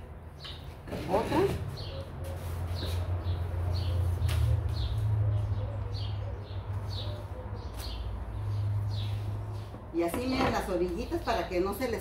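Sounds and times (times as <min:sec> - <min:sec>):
bird chirping: 0:00.3 - 0:09.8.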